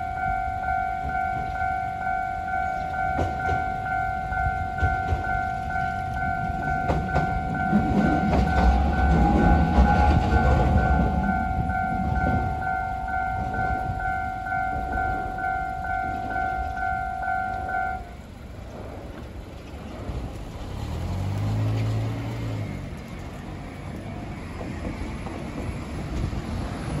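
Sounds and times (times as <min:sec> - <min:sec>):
railway crossing bell ringing: 0:00.0 - 0:18.9
street traffic noise: 0:00.0 - 0:27.0
vehicle engine passing: 0:19.9 - 0:24.3.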